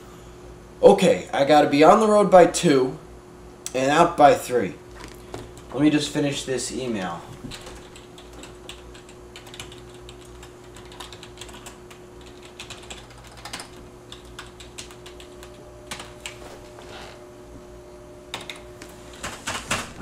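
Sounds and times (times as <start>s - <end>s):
low electrical hum: 0.0s - 20.0s
keyboard typing: 7.5s - 16.4s, 18.3s - 18.6s.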